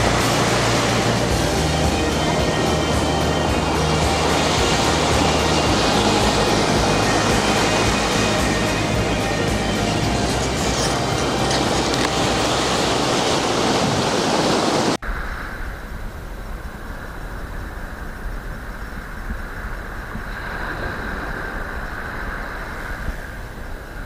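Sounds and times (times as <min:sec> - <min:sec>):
sea surf splashing: 0:00.0 - 0:15.6, 0:16.9 - 0:24.0
waves washing onto beach: 0:00.0 - 0:24.0.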